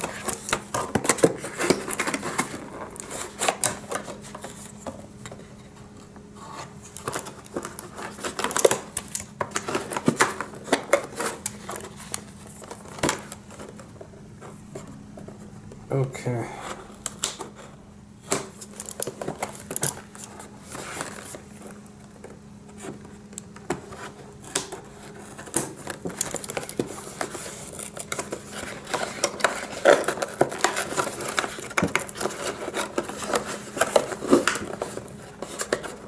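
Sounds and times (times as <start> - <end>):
scissors snipping plastic packaging: 6.9 - 13.8, 23.3 - 36.0.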